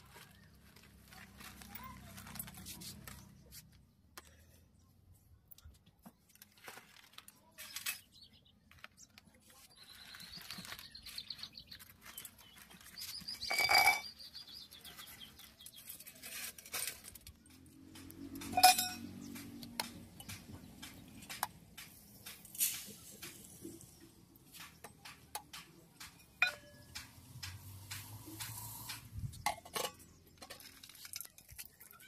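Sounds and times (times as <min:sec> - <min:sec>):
dry noodles crackling and rustling: 0:00.0 - 0:03.8, 0:06.3 - 0:07.9, 0:08.7 - 0:13.3
metal tin and lid clanking: 0:18.4 - 0:19.2, 0:29.4 - 0:31.4
ringing clink of steel plate: 0:18.6 - 0:19.0.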